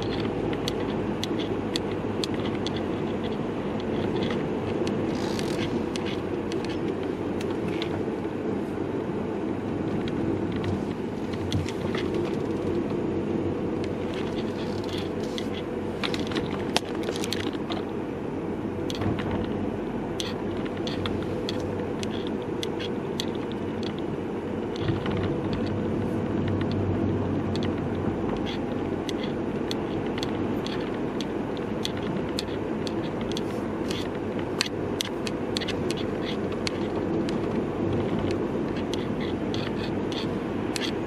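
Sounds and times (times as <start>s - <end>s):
camera strap clicking and scraping: 0.0s - 8.0s, 13.9s - 17.9s, 28.4s - 41.0s
car cabin road and engine noise: 0.0s - 41.0s.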